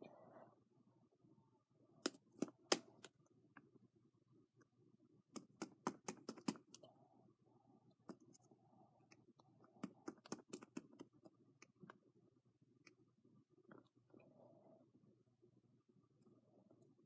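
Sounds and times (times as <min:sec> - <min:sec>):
pencil tapping plastic container: 0:02.0 - 0:03.1, 0:05.3 - 0:06.8, 0:09.8 - 0:11.3.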